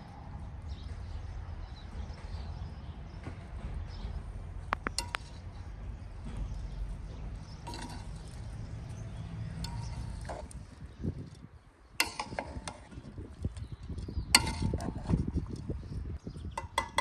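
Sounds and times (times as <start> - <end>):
utensils clinking on cookware: 7.6 - 8.4, 9.5 - 10.6, 12.0 - 12.9.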